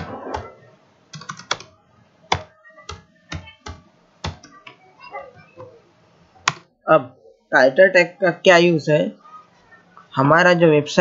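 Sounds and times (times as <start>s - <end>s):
computer keyboard typing: 0.0s - 0.5s, 1.1s - 1.7s, 2.3s - 4.8s, 6.4s - 6.6s.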